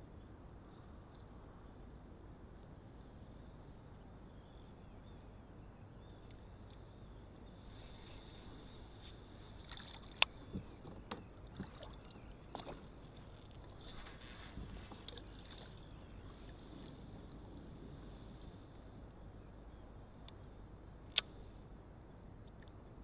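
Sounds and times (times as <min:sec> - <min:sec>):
short rustle: 0:13.4 - 0:15.1.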